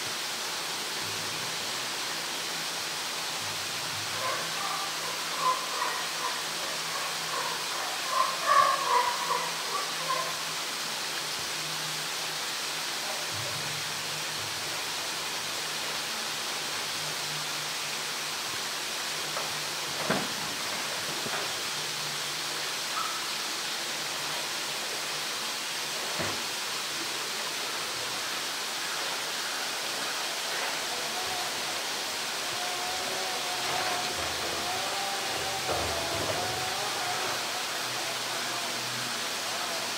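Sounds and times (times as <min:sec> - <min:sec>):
running water hissing: 0:00.0 - 0:39.9
indistinct voices: 0:29.9 - 0:39.9.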